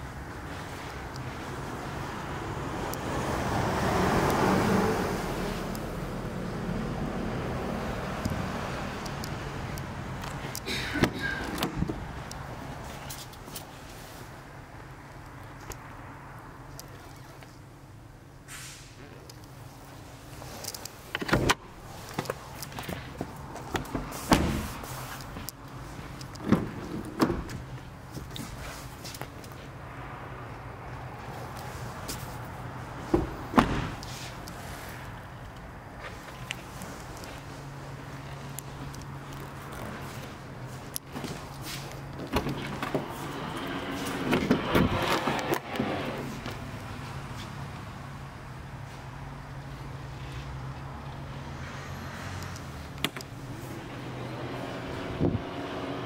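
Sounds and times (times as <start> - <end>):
car doors thumping shut: 23.7 - 24.8, 33.1 - 34.0.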